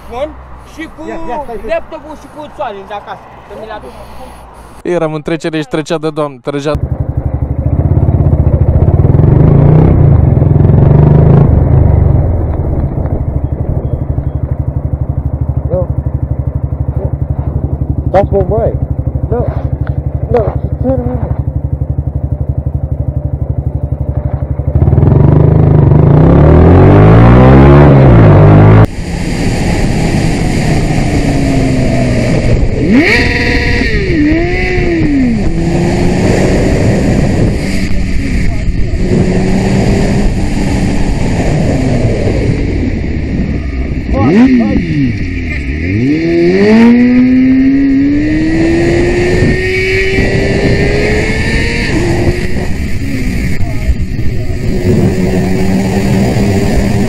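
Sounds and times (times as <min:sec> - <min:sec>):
motorcycle engine idling and revving: 0:00.0 - 0:57.0
wind noise on microphone: 0:27.8 - 0:57.0.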